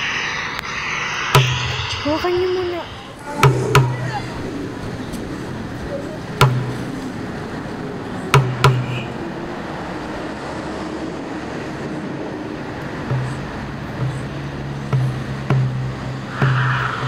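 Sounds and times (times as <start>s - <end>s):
heavy hammering blows with ring: 0.0s - 5.1s
steady background noise: 0.0s - 17.0s.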